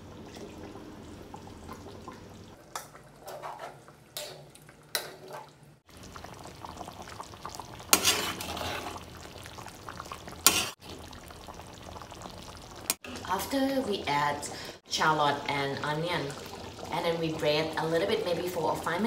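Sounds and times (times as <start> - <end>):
metal spatula scraping wok: 3.1 - 4.5, 7.9 - 9.0, 10.4 - 10.8.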